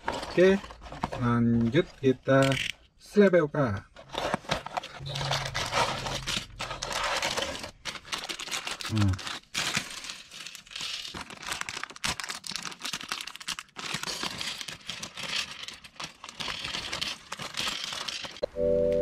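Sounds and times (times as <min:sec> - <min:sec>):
plastic bag crinkling: 0:04.0 - 0:18.4.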